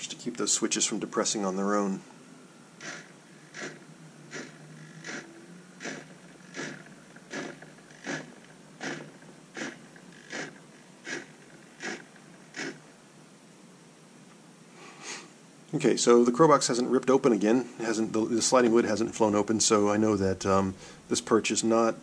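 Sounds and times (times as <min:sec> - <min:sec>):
motor whirring: 0:02.7 - 0:12.8.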